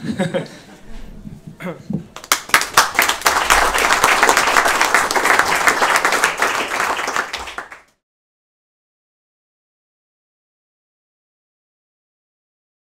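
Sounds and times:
applause: 0:02.2 - 0:08.0.

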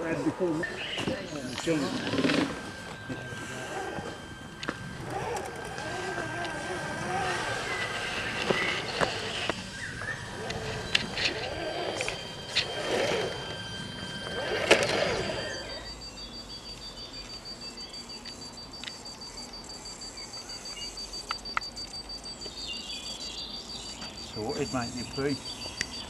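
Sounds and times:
electric motor whining: 0:00.0 - 0:17.7
thin high tone: 0:00.0 - 0:26.0.

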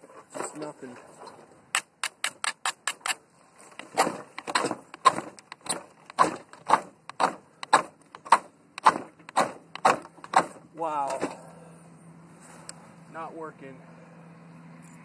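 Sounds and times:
fire steel sharp clicks: 0:01.7 - 0:03.2, 0:03.8 - 0:10.6.

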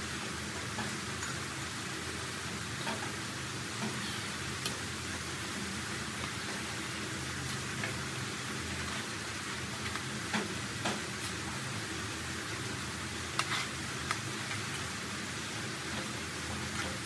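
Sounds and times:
potatoes sizzling in hot oil: 0:00.0 - 0:17.0.

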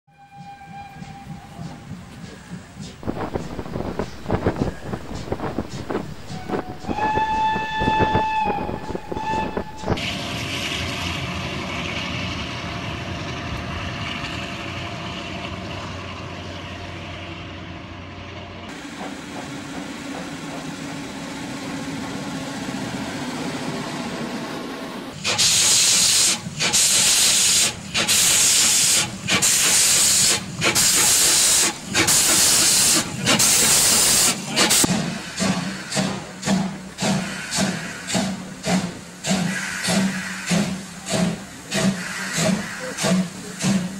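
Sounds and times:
steam whistle blast: 0:00.1 - 0:01.8, 0:06.3 - 0:10.2
locomotive exhaust steam blasts: 0:00.3 - 0:17.2, 0:18.7 - 0:43.9
steady rushing noise: 0:02.0 - 0:08.1.

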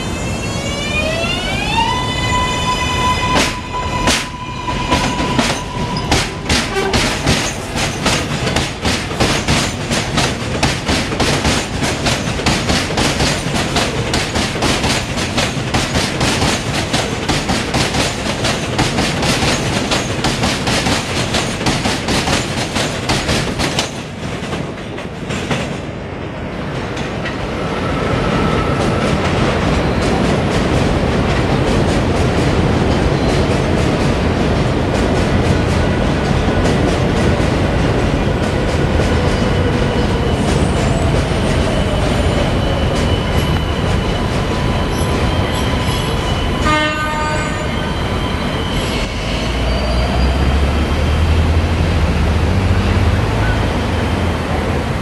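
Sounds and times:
train rumbling: 0:00.0 - 0:55.0
train wheels clicking over rail joints: 0:03.3 - 0:25.9.

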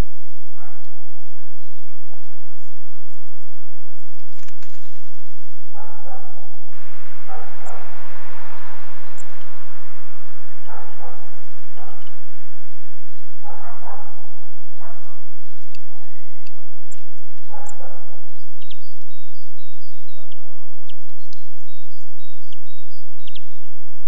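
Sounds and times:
dog barking: 0:00.6 - 0:02.3, 0:05.7 - 0:08.6, 0:10.6 - 0:12.2, 0:13.4 - 0:15.4, 0:17.4 - 0:18.3
rushing noise: 0:04.2 - 0:18.9.

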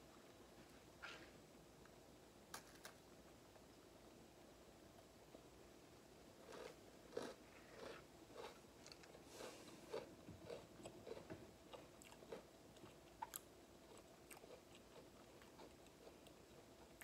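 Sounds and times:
chewing crunchy cookie: 0:06.4 - 0:17.0.

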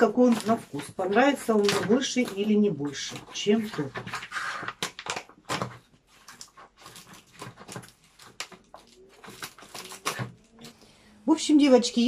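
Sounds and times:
pouch crinkling and crackling: 0:00.0 - 0:10.8.

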